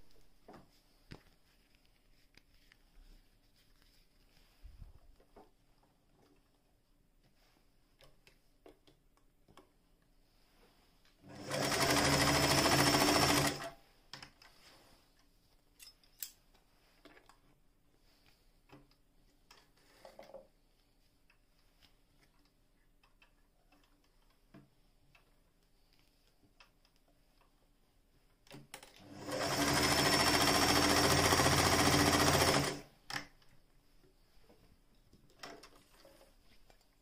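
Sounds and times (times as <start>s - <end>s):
faint clicks and taps: 5.0s - 10.2s, 18.2s - 27.8s
sewing machine running: 11.3s - 13.7s, 29.1s - 32.9s.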